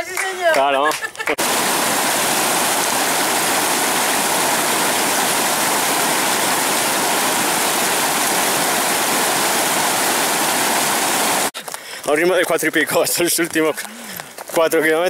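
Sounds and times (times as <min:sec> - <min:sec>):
stream rushing over rocks: 0:01.4 - 0:11.6.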